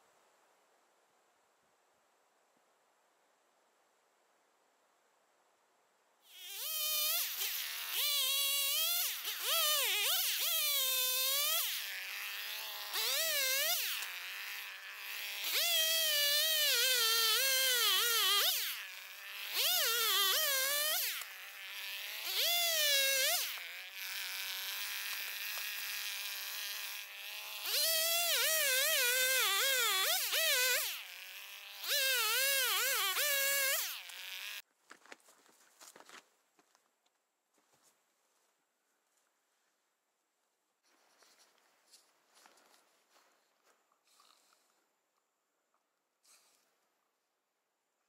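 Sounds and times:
chainsaw cutting log: 6.2s - 34.7s.

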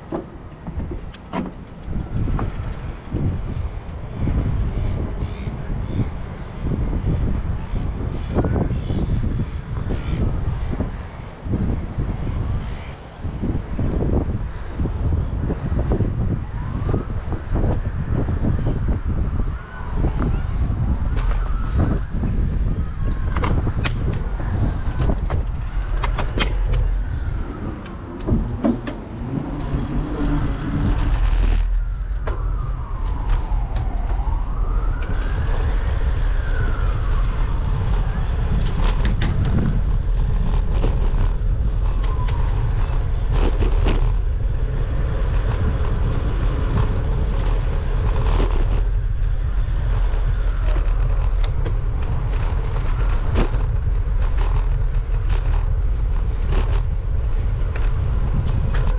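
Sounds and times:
wind rumble on microphone: 0.0s - 58.9s
siren wailing: 26.7s - 39.6s.

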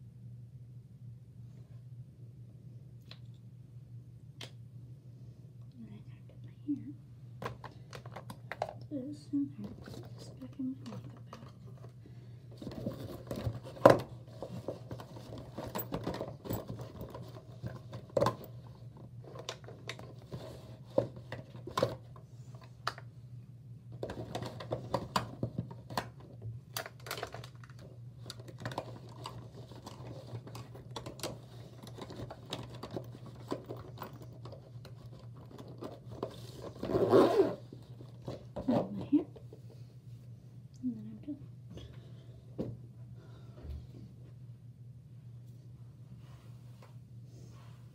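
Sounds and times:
makeup items clicking and rustling: 7.4s - 9.0s, 9.6s - 12.0s, 12.6s - 23.1s, 24.0s - 36.9s.

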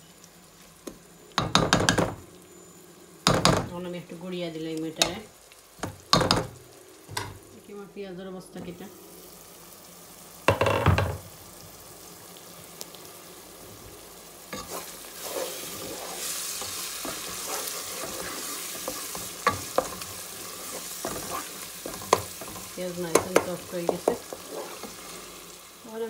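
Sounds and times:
onions sizzling in oil: 0.0s - 26.0s
wooden spoon stirring and tapping pot: 16.6s - 25.0s.

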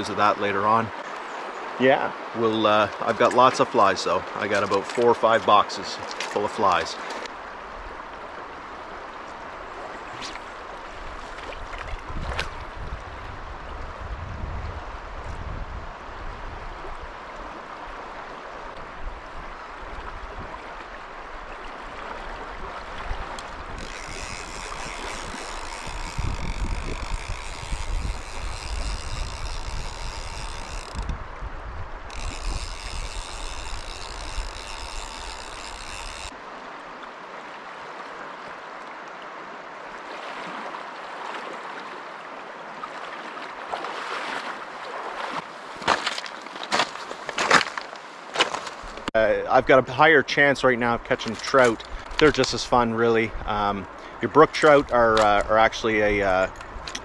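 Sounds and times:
wind buffeting microphone: 11.1s - 17.1s, 22.3s - 36.3s
high steady buzz: 32.0s - 36.4s.

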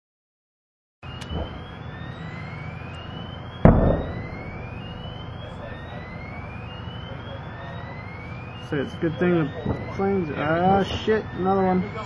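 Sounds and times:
steady rumble: 1.0s - 12.0s
whooping siren: 1.0s - 12.0s
explosion with rumbling tail: 3.6s - 6.0s.

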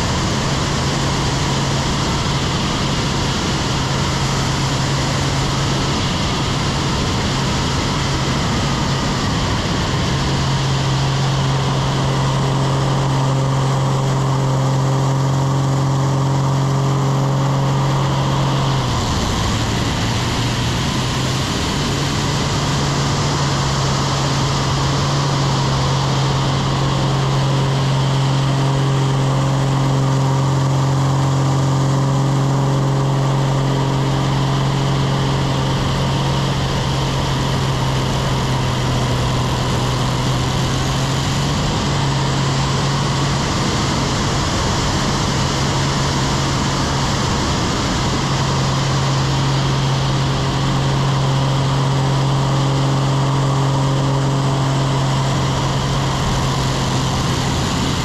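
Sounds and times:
airflow rushing over microphone: 0.0s - 58.0s
propeller plane engine: 0.0s - 58.0s.

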